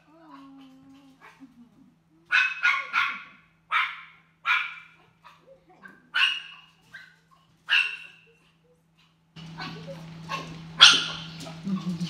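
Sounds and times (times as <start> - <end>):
dog barking: 2.3 - 8.3, 9.5 - 11.6.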